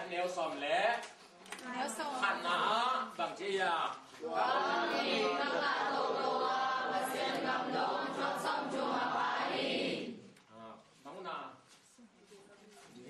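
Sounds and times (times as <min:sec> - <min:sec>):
unaccompanied voices chanting: 0:04.2 - 0:10.4.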